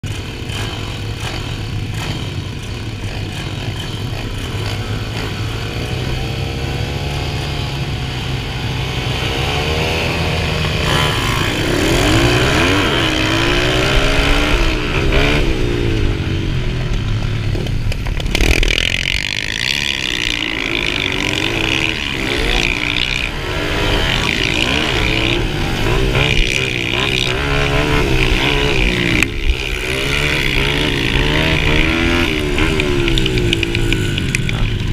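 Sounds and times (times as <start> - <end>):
dirt bike engine revving: 0.0 - 34.9.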